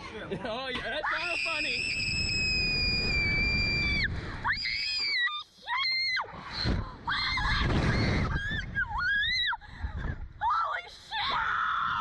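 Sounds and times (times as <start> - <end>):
wind rushing over microphone: 6.5 - 10.4.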